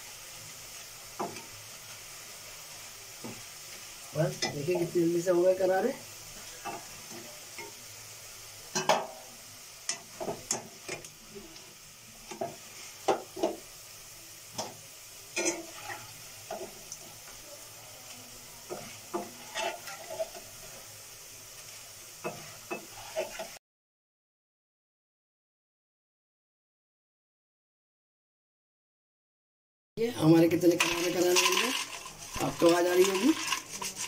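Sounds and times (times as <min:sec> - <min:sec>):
chips sizzling in hot oil: 0:00.0 - 0:23.6, 0:30.0 - 0:34.0
metal utensils knocking a pan: 0:08.7 - 0:09.2, 0:30.8 - 0:34.0.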